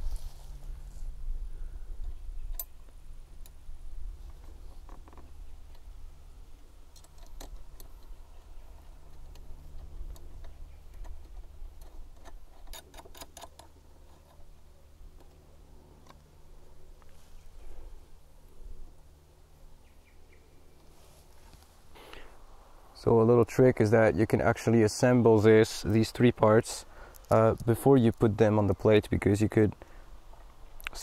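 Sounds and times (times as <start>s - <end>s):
steady low rumble: 0.0s - 12.6s
clicks of screw and nut: 6.9s - 14.4s.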